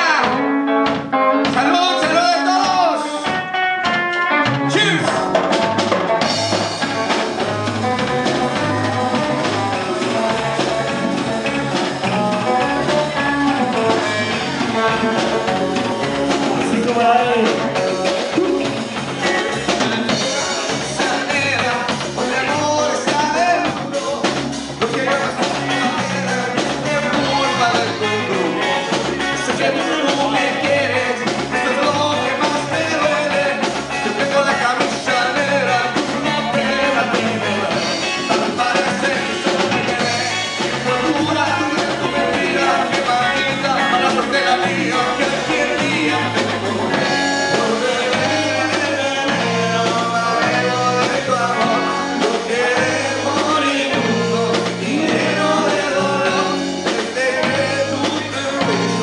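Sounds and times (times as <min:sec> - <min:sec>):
bass guitar: 0:00.0 - 0:59.0
drum kit: 0:00.0 - 0:59.0
electric guitar: 0:00.0 - 0:59.0
man singing into a microphone: 0:12.0 - 0:59.0.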